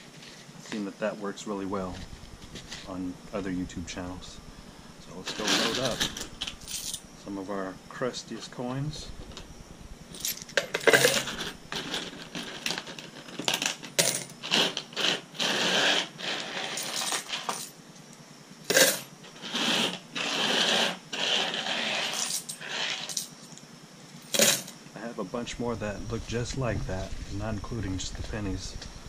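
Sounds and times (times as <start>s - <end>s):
coins clinking into a drum: 5.2s - 7.0s, 10.2s - 17.8s, 18.7s - 23.5s, 24.2s - 24.8s.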